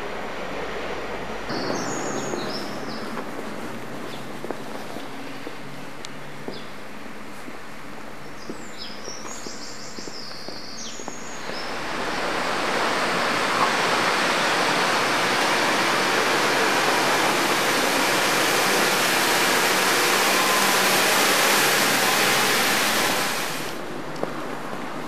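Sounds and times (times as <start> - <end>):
vehicle rushing hiss: 9.5 - 24.7
low engine hum: 9.6 - 25.0.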